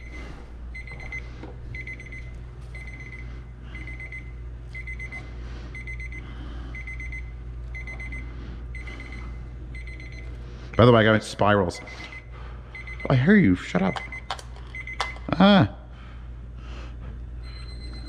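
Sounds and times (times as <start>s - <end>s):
kitchen timer beeping: 0.0s - 3.2s, 3.8s - 8.2s, 8.8s - 10.3s, 11.9s - 15.3s, 17.4s - 18.0s
steady low hum: 0.0s - 18.0s.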